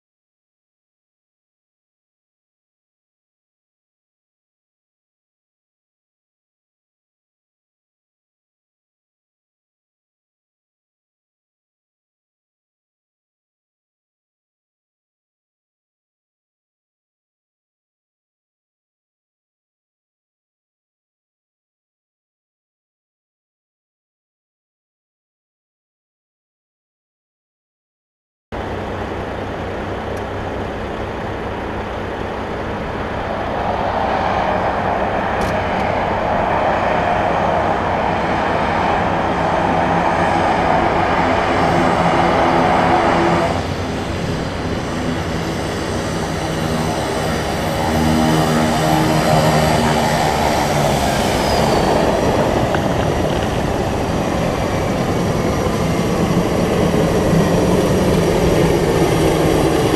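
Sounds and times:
turboprop plane engine: 0:28.6 - 0:59.9.

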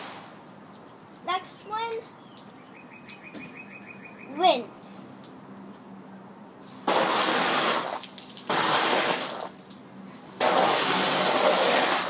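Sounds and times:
hose nozzle spraying water: 0:06.6 - 0:12.0.

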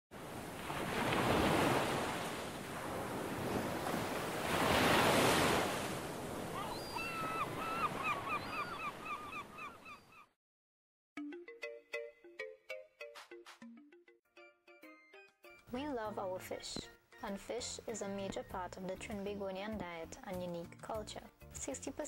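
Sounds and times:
surf breaking on beach: 0:00.2 - 0:07.6
bird chirping: 0:06.6 - 0:10.3.

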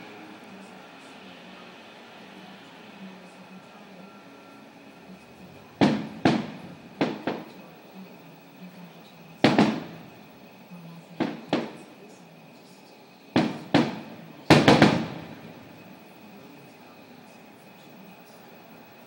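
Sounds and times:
firework shells booming: 0:05.5 - 0:08.0, 0:09.3 - 0:10.5, 0:11.1 - 0:12.1, 0:13.3 - 0:16.2.

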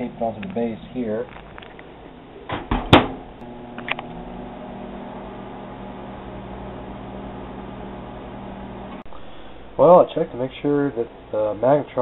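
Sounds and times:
microwave oven humming: 0:03.3 - 0:10.4.

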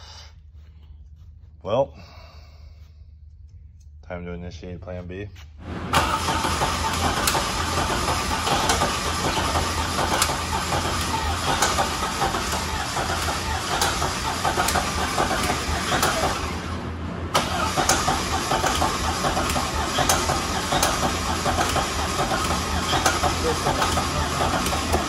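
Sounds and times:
starter cranking engine: 0:05.9 - 0:25.0.

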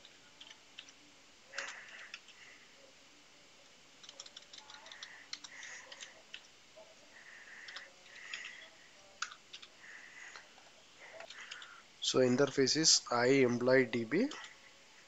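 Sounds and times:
typing on computer keyboard: 0:04.0 - 0:06.5, 0:07.6 - 0:08.6, 0:09.2 - 0:09.7, 0:11.2 - 0:11.7.

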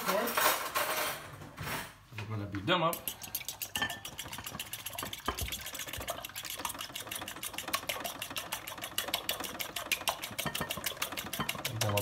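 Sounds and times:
fork beating eggs in bowl: 0:02.8 - 0:12.0.

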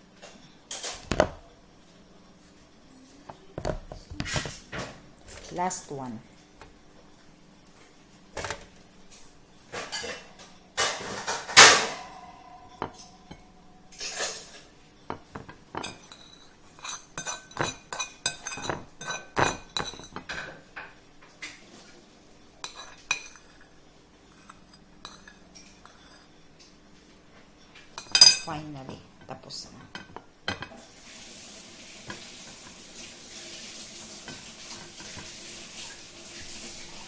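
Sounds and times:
dishware clinks and taps: 0:09.8 - 0:21.0, 0:27.9 - 0:30.8.

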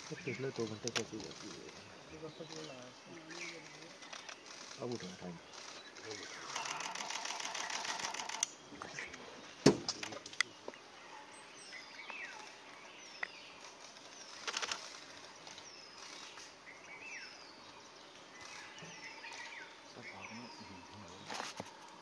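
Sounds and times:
birds chirping: 0:00.0 - 0:22.0
camera shutter clicks: 0:06.4 - 0:08.5, 0:14.4 - 0:15.0.

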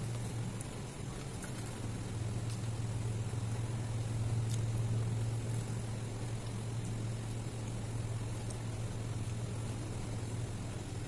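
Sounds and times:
steady low hum: 0:00.0 - 0:11.0
soft clicks of fingers tearing bread: 0:04.4 - 0:09.4.

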